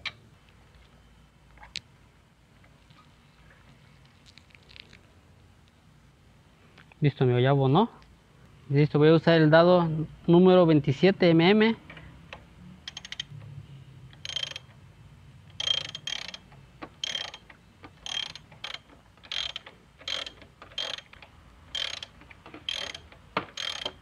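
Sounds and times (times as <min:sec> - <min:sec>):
ratchet wrench clicking: 0:12.9 - 0:13.3, 0:14.2 - 0:14.7, 0:15.5 - 0:24.0.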